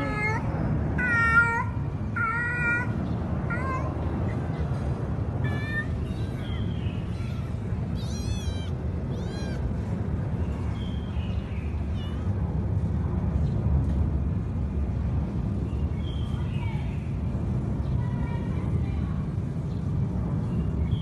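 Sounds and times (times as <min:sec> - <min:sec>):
steady low rumble: 0:00.0 - 0:21.0
cat mewing: 0:07.2 - 0:09.8.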